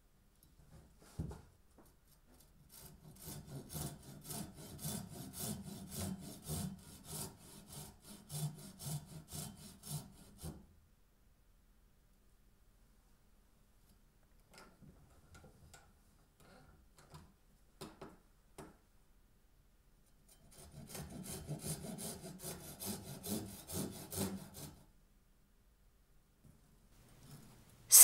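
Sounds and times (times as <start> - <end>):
handsaw cutting wood: 2.7 - 10.5, 20.5 - 24.8.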